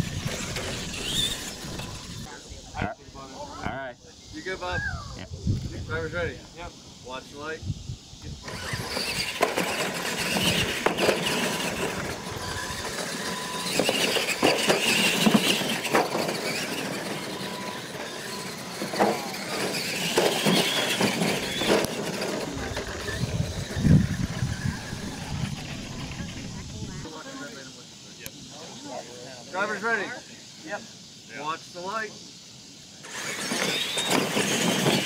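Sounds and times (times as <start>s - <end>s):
toy trucks thumping on ramps: 0.0s - 2.3s, 8.5s - 26.5s, 33.0s - 35.0s
toy truck motors whining: 0.0s - 2.4s, 8.4s - 27.1s, 33.0s - 35.0s.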